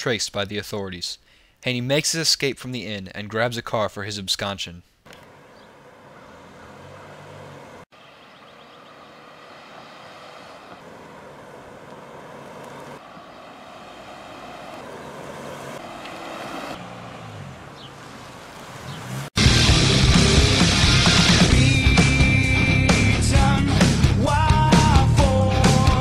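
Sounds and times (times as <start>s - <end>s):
car engine and tyre noise: 5.0s - 21.6s.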